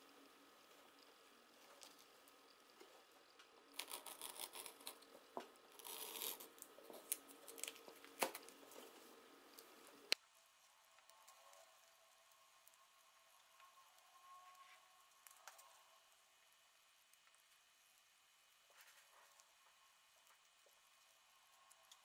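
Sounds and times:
plastic tape rustling and crinkling: 0:03.7 - 0:10.0.

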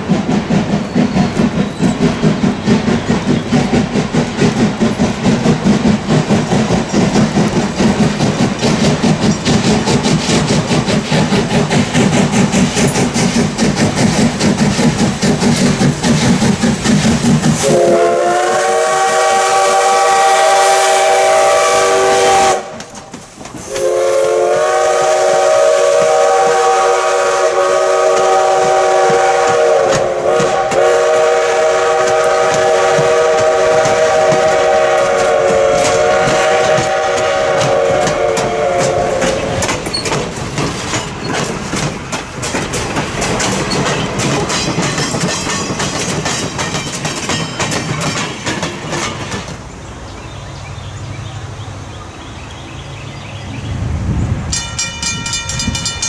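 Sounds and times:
train wheels clicking over rail joints: 0:00.0 - 0:51.3, 0:54.5 - 0:56.0
steam whistle blast: 0:17.6 - 0:22.8, 0:23.7 - 0:39.7.

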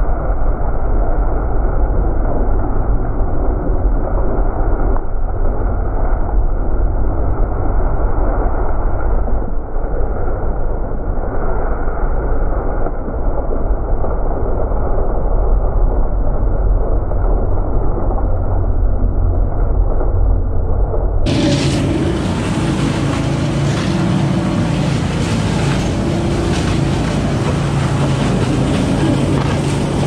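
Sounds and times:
leaf vacuum running: 0:21.3 - 0:30.0.

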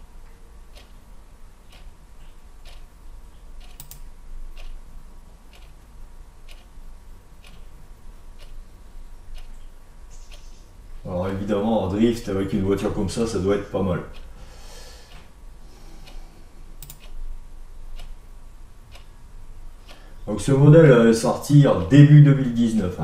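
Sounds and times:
faint low hum: 0:00.0 - 0:23.0
computer mouse clicking: 0:01.7 - 0:02.9, 0:03.6 - 0:04.8, 0:05.5 - 0:06.8, 0:07.4 - 0:07.7, 0:08.4 - 0:08.6, 0:16.8 - 0:17.2.

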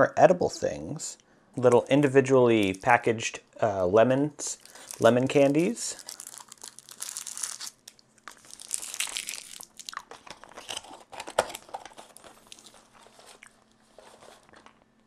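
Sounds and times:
plastic candy wrapper crinkling: 0:02.5 - 0:03.0, 0:04.5 - 0:14.9.

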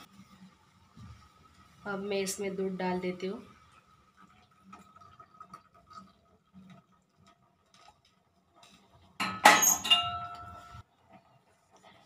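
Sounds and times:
tea boiling with popping: 0:00.0 - 0:12.0
metal cookware clattering: 0:09.2 - 0:10.8.

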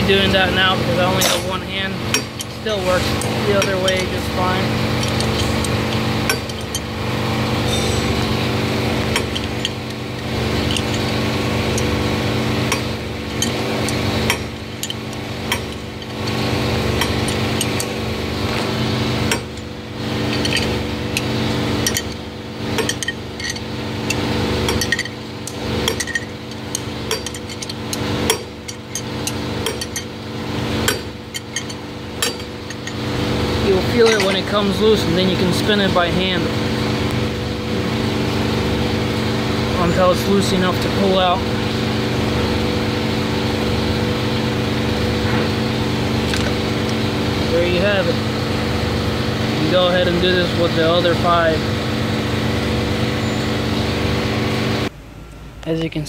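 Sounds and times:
steady hum: 0:00.0 - 0:56.0
steel tools clinking: 0:01.0 - 0:04.3, 0:04.9 - 0:06.9, 0:07.6 - 0:08.4, 0:19.3 - 0:30.2, 0:30.8 - 0:33.0, 0:33.7 - 0:34.8
ratchet clicking: 0:05.0 - 0:06.9, 0:20.3 - 0:30.1.

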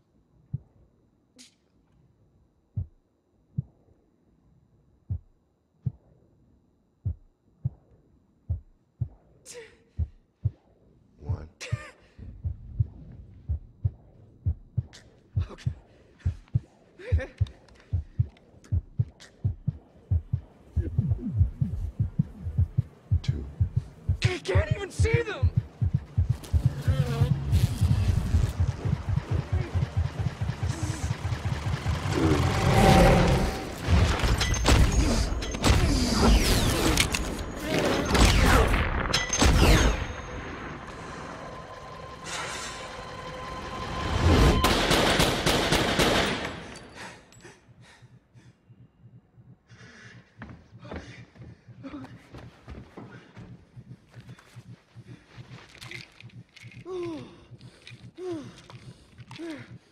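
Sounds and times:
heavy heartbeat thumps: 0:00.4 - 0:00.8, 0:02.7 - 0:03.9, 0:05.0 - 0:06.2, 0:07.0 - 0:09.4, 0:10.0 - 0:35.0, 0:47.7 - 0:59.9
steady hum: 0:12.4 - 0:34.4
man sobbing: 0:17.0 - 0:17.4.

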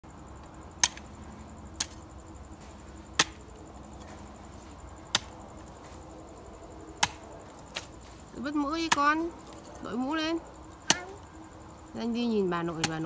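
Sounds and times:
hoe chopping into soil: 0:00.8 - 0:02.0, 0:02.6 - 0:06.0, 0:07.0 - 0:08.2.

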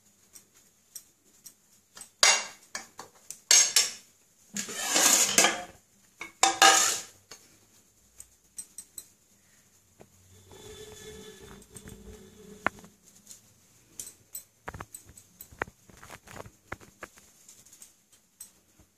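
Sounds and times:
metal spoons scraping glass bowl: 0:04.6 - 0:07.2, 0:10.4 - 0:12.9.

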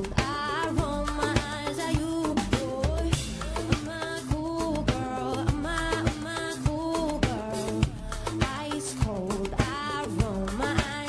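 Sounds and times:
drum strokes: 0:00.0 - 0:11.0
live pop band music: 0:00.0 - 0:11.0.

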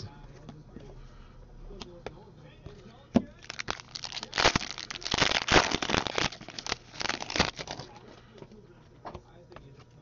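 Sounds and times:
foil wrapper crinkling and tearing: 0:03.4 - 0:08.1.

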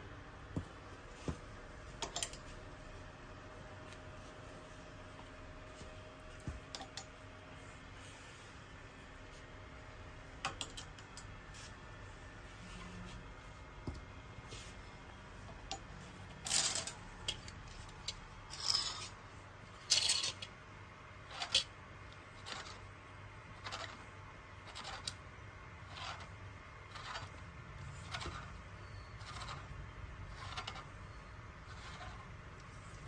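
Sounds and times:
hangers scraping along metal rail: 0:16.4 - 0:19.2.

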